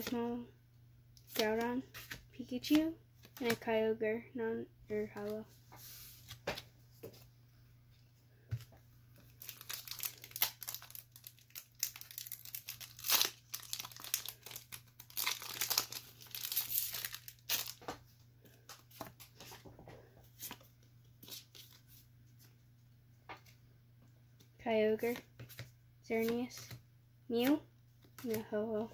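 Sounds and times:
cards rustling: 1.2 - 3.7, 9.2 - 18.0, 25.0 - 26.8, 27.4 - 28.5
foil wrapper tearing and crinkling: 9.4 - 17.8.

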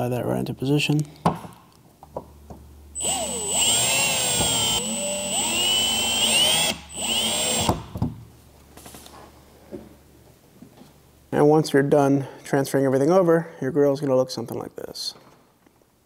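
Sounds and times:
drill motor whine: 3.0 - 7.8.

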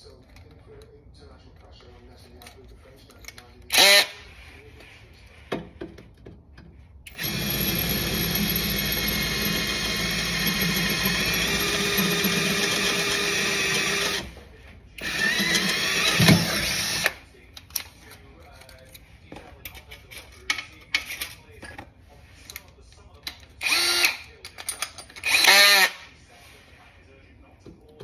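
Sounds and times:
cordless drill boring: 3.7 - 4.2, 7.1 - 14.3, 15.0 - 17.2, 23.6 - 24.2, 25.2 - 26.0.

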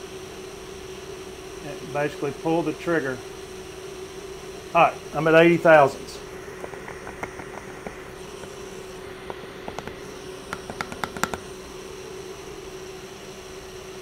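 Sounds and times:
steady machine hum: 0.0 - 14.0.

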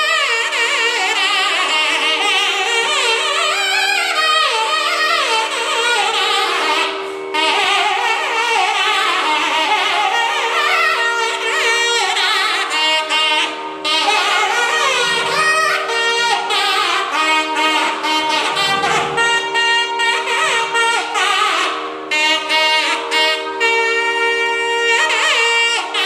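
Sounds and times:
nadaswaram melody: 0.0 - 26.0
steady drone: 13.8 - 24.9.

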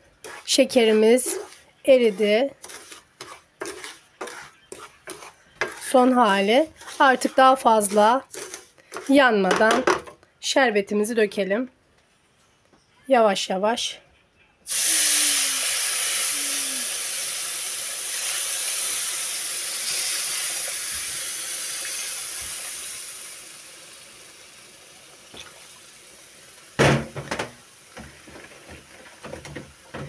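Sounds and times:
syrup sizzling in a hot pan: 0.2 - 9.1, 14.7 - 26.8.

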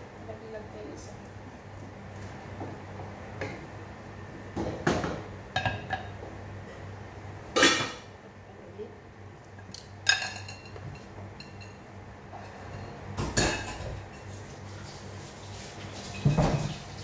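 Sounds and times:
low steady hum: 0.0 - 15.5
kitchenware clattering: 4.6 - 6.2, 7.5 - 8.1, 10.0 - 11.8, 12.4 - 14.3, 16.0 - 17.0.

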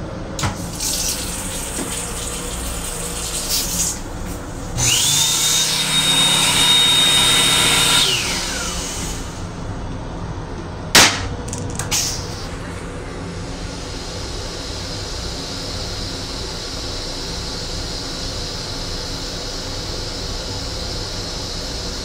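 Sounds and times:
hand dryer whining: 0.4 - 10.0
sharp knock: 10.9 - 11.6.

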